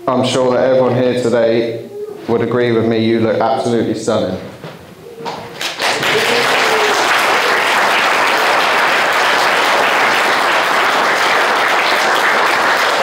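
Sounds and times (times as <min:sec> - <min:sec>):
crowd applauding: 0:05.6 - 0:13.0.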